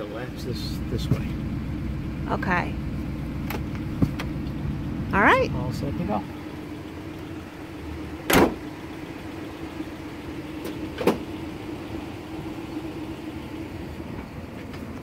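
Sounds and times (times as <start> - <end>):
car engine idling: 0.0 - 15.0
sharp engine knocks: 3.4 - 4.6, 8.2 - 8.7, 10.6 - 11.4.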